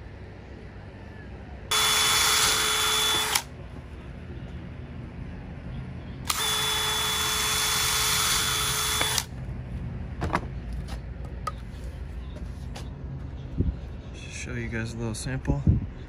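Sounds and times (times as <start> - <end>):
cordless drill drilling wood: 1.7 - 3.5, 6.3 - 9.3.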